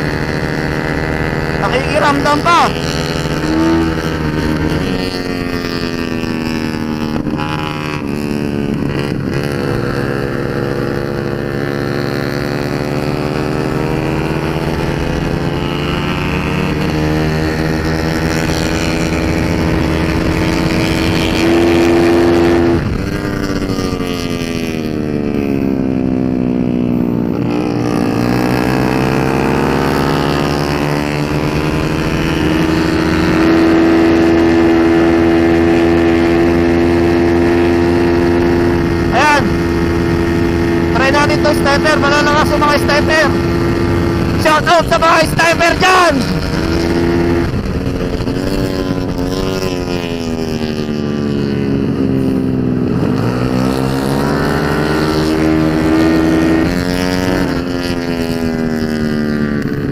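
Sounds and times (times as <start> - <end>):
scooter engine running hard: 0.0 - 59.9.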